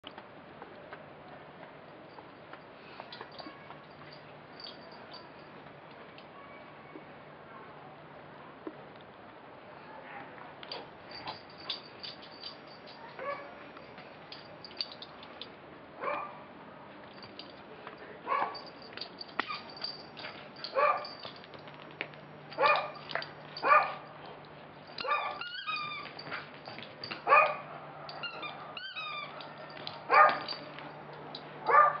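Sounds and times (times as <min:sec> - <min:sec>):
dog barking: 0:13.2 - 0:13.6, 0:16.0 - 0:16.4, 0:18.3 - 0:18.6, 0:20.7 - 0:21.2, 0:22.6 - 0:23.0, 0:23.6 - 0:24.0, 0:25.0 - 0:25.4, 0:27.3 - 0:27.8, 0:30.1 - 0:30.5, 0:31.7 - 0:32.0
dog yelping: 0:20.7 - 0:21.2, 0:22.6 - 0:23.0, 0:25.0 - 0:26.4, 0:27.3 - 0:30.5, 0:31.7 - 0:32.0.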